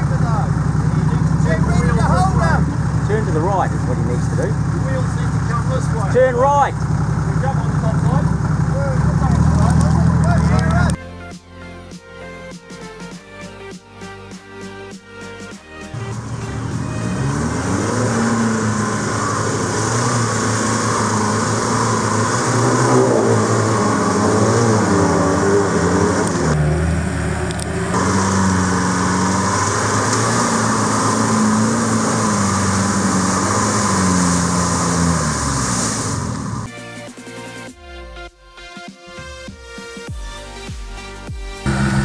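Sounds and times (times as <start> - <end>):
vehicle engine revving: 0.0 - 11.0, 15.7 - 36.7, 41.6 - 42.0.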